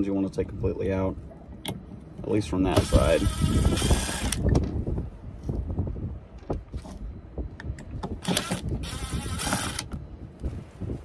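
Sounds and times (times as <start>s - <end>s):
cordless drill whirring: 2.8s - 4.4s, 8.2s - 10.0s.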